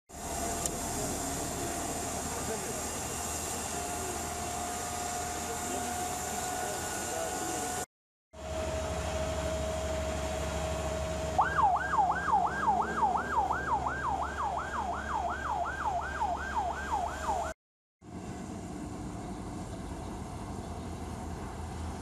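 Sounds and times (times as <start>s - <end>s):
emergency vehicle siren: 0.2s - 7.8s, 8.4s - 17.6s
low engine rumble: 18.0s - 22.0s.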